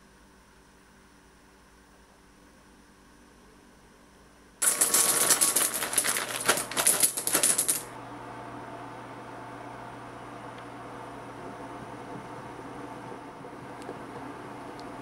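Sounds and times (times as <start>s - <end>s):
chocolate pieces clattering into glass: 4.6s - 7.9s.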